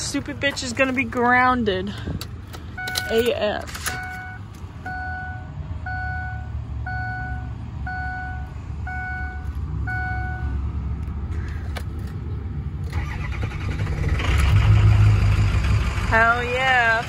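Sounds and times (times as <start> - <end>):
vehicle engine hum: 0.0 - 17.0
car warning chime beeping: 2.6 - 10.6.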